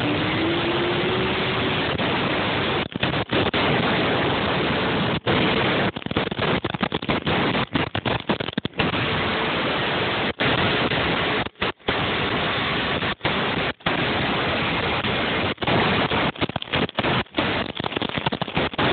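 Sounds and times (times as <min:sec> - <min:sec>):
wind rushing over microphone: 0:00.0 - 0:18.9.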